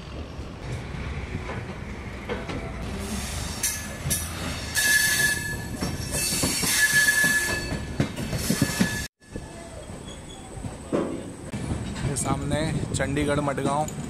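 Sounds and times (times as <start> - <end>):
train rumbling on rails: 0.0 - 14.0
train wheels squealing: 3.3 - 10.6
rail clacks: 3.5 - 9.1.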